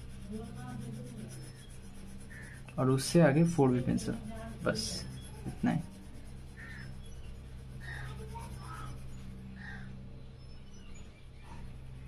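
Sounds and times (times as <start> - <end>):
pencil strokes on paper: 0.0 - 9.5
steady low hum: 0.0 - 12.0.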